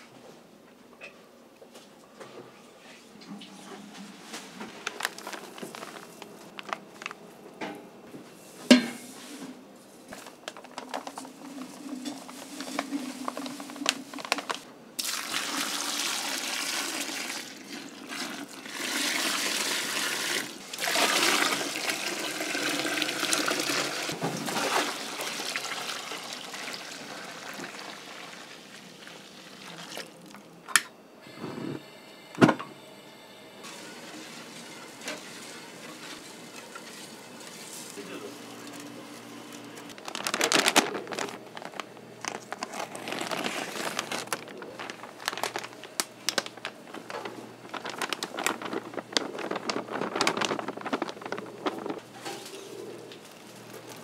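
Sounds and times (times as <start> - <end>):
water running into sink: 15.0 - 30.4.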